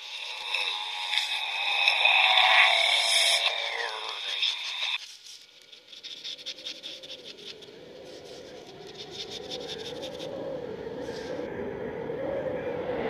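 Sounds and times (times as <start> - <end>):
low wavering drone: 0.0 - 5.0, 6.6 - 13.0
pen scratching on paper: 3.9 - 10.2.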